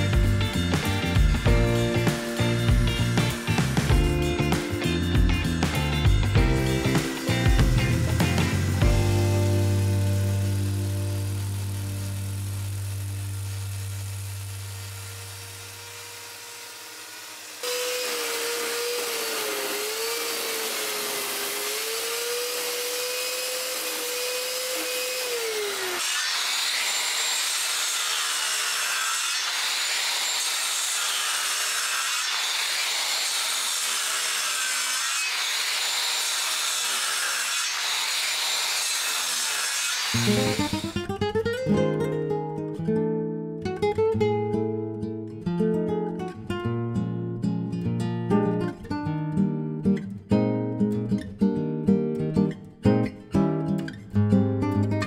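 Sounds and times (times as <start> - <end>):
circular saw cutting wood: 0.0 - 41.0.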